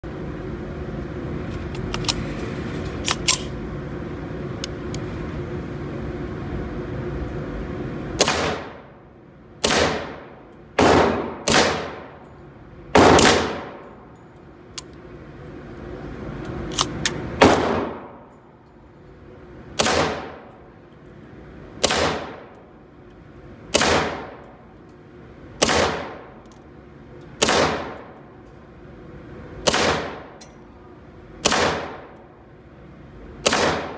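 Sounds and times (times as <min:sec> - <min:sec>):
rifle shots echoing indoors: 0:08.2 - 0:09.0, 0:09.6 - 0:14.1, 0:16.9 - 0:18.4, 0:19.8 - 0:20.6, 0:21.8 - 0:22.7, 0:23.6 - 0:24.7, 0:25.5 - 0:26.4, 0:27.3 - 0:28.2, 0:29.6 - 0:30.5, 0:31.4 - 0:32.3, 0:33.4 - 0:33.9.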